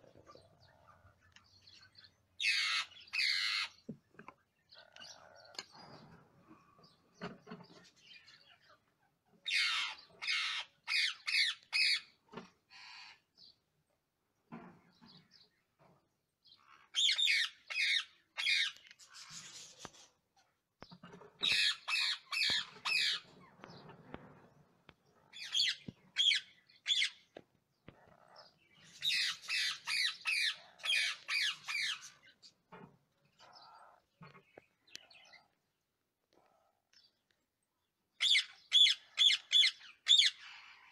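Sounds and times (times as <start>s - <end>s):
parakeet squawking harshly: 2.4s - 3.7s, 9.5s - 12.1s.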